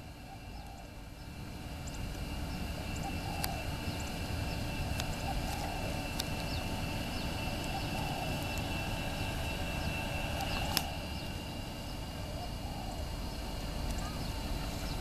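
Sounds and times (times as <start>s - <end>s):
steady high whine: 0.0s - 15.0s
steady low rumble: 0.0s - 15.0s
birds calling: 0.2s - 15.0s.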